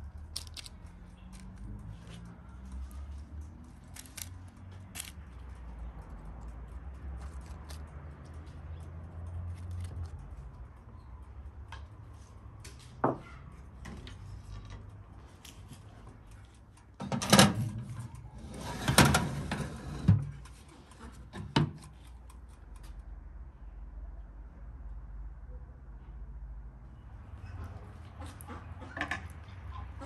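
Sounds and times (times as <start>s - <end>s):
metal pan scraping on oven rack: 18.4s - 20.3s.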